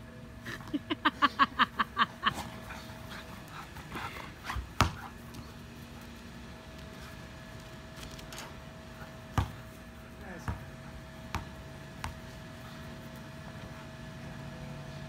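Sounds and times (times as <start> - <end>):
ball thumping on ground: 4.6 - 5.1, 9.3 - 9.7, 10.4 - 12.3.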